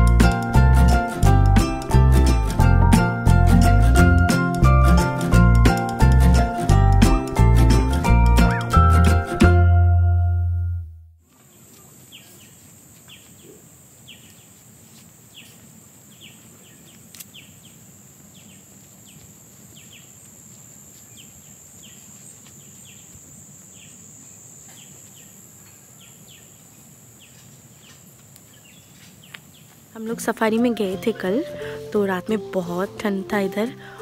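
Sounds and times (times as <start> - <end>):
high-pitched insect drone: 17.4 - 26.9.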